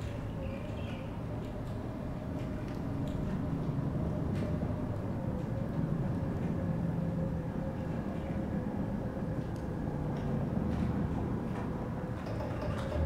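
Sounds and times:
faint steady hum: 0:00.0 - 0:13.0
low steady rumble: 0:00.0 - 0:13.0.

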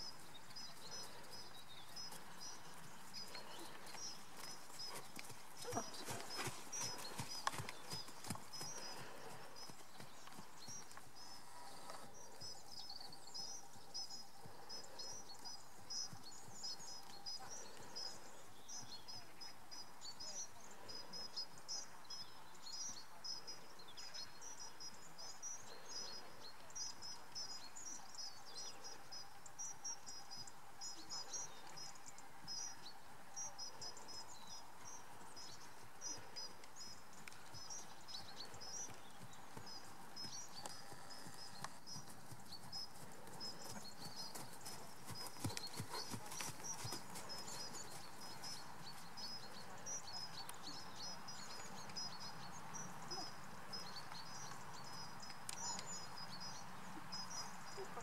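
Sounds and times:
horse hoofbeats on sand: 0:02.1 - 0:10.8, 0:38.4 - 0:49.0.

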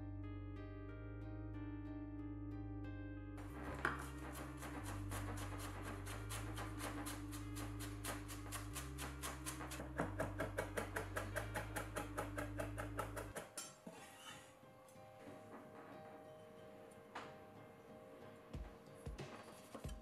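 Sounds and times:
background music: 0:00.0 - 0:20.0
knife chopping on wooden board: 0:03.8 - 0:13.6.

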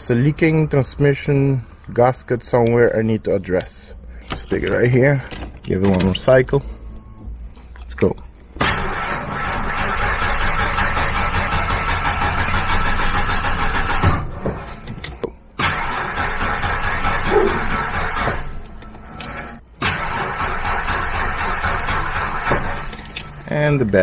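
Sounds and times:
car starter cranking: 0:08.6 - 0:23.6.

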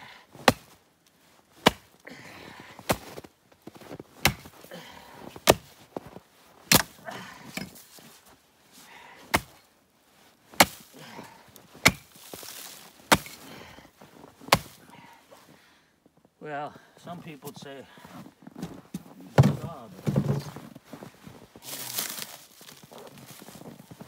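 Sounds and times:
axe chopping carcass: 0:00.4 - 0:00.8, 0:01.6 - 0:02.0, 0:04.2 - 0:04.6, 0:05.4 - 0:05.7, 0:06.7 - 0:07.8, 0:09.3 - 0:09.6, 0:10.6 - 0:10.9, 0:11.8 - 0:13.4, 0:14.5 - 0:14.8
soft crunching: 0:07.7 - 0:16.3, 0:17.4 - 0:24.0.

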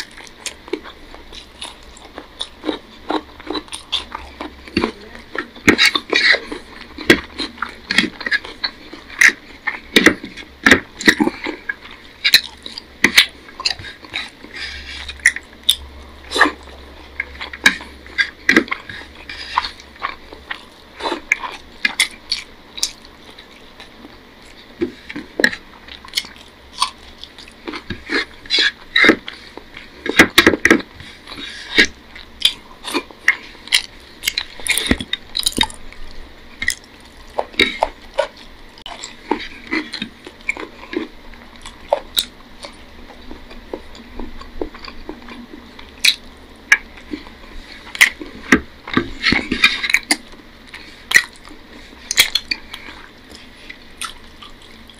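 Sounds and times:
person chewing food: 0:00.0 - 0:54.9
sucking at fingers: 0:00.0 - 0:54.9
lip smacks: 0:43.4 - 0:54.9.

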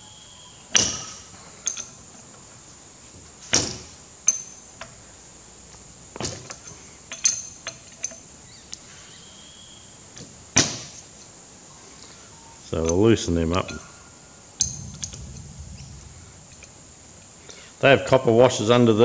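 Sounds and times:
spanner clanking on metal: 0:00.7 - 0:02.3, 0:03.6 - 0:05.0, 0:06.2 - 0:08.3, 0:14.6 - 0:15.4.

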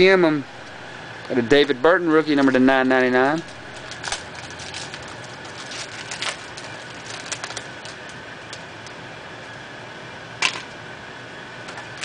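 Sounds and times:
foil wrapper crinkling: 0:02.2 - 0:09.0.

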